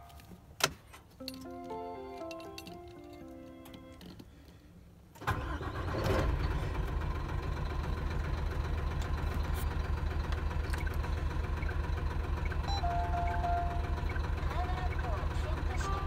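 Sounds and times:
diesel truck engine starting and idling: 0:05.0 - 0:16.0.

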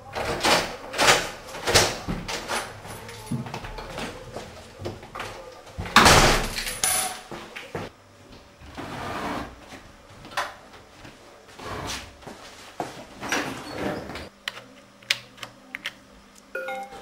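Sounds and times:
wooden doors opening and closing: 0:00.0 - 0:07.6
footsteps: 0:01.5 - 0:06.0, 0:09.6 - 0:13.3.

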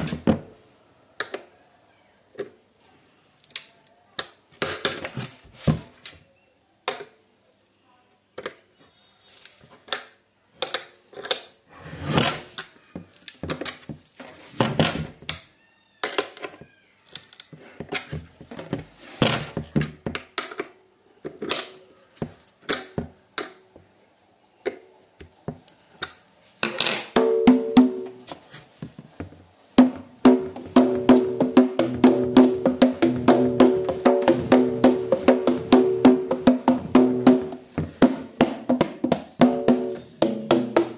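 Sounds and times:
hand drum taps and slaps: 0:29.8 - 0:40.9.

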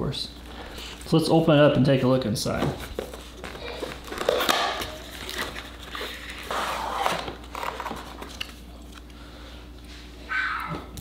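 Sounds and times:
paper and plastic rustling: 0:02.4 - 0:09.1.

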